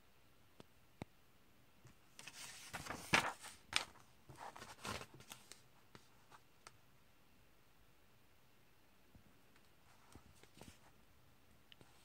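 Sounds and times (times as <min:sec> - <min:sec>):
paper pages rustling: 0:02.1 - 0:06.4, 0:09.9 - 0:11.0.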